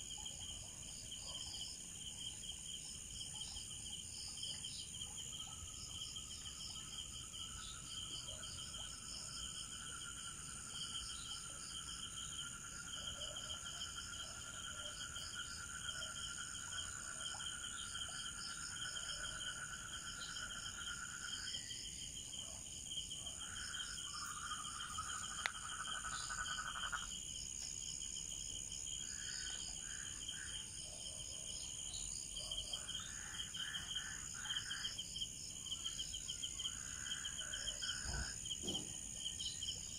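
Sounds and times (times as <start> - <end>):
lower insect trill: 0.0 - 39.9
pulsing cricket chirps: 0.0 - 39.9
high insect trills: 13.8 - 39.9.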